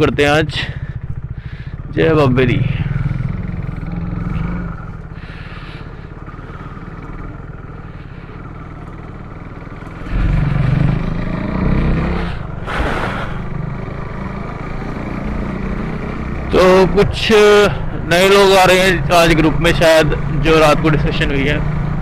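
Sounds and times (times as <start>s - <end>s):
motorcycle engine accelerating: 0.0s - 22.0s
short rush of noise: 12.6s - 13.5s.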